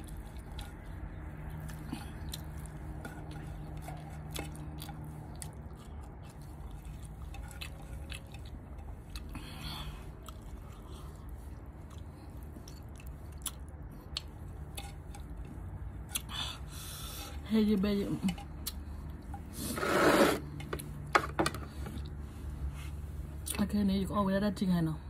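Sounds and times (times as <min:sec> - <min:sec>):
chewing with lip smacks: 0:00.0 - 0:16.4, 0:18.5 - 0:19.6
steady low hum: 0:00.0 - 0:25.0.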